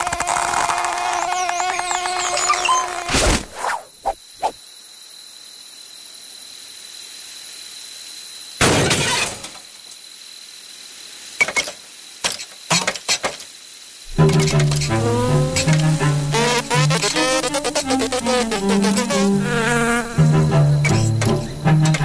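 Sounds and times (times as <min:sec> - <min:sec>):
music: 0:14.1 - 0:22.0.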